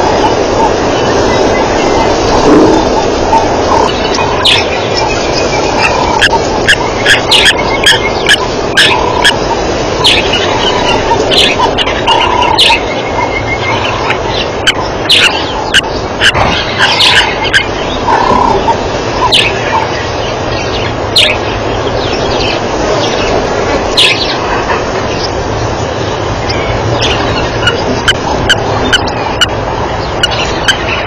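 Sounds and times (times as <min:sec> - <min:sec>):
wild dogs twittering: 0:00.0 - 0:25.4, 0:26.4 - 0:31.0
background hiss: 0:00.0 - 0:31.0.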